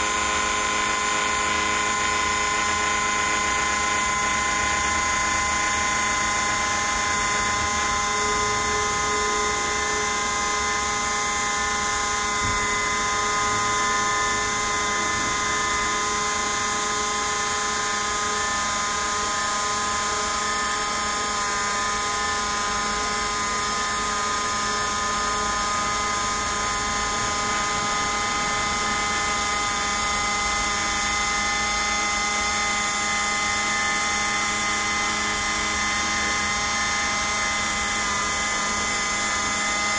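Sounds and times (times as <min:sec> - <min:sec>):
router spindle whining: 0:00.0 - 0:39.9.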